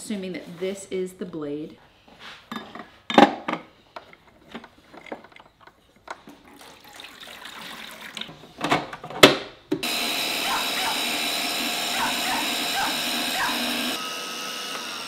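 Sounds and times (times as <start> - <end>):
water pouring into plastic tray: 6.5 - 8.3.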